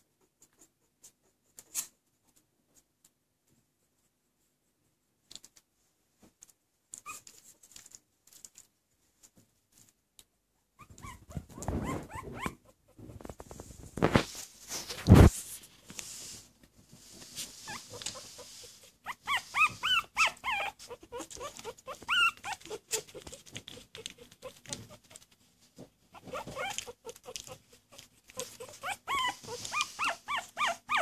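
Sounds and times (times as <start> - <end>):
puppies squeaking and whimpering: 10.8 - 13.3, 17.5 - 25.2, 26.2 - 31.0.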